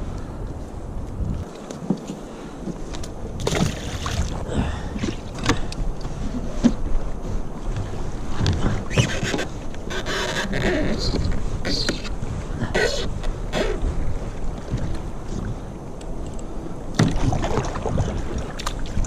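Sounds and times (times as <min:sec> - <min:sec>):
water moving around kayak: 0:00.0 - 0:19.0
wind on microphone: 0:00.0 - 0:19.0
clicks and rustles of fishing line: 0:00.2 - 0:16.6.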